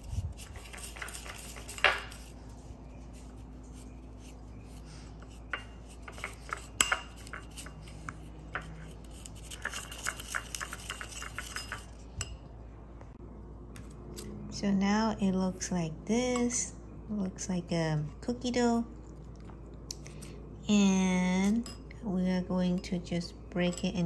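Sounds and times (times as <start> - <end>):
plastic fork scraping a bowl: 0.0 - 12.0.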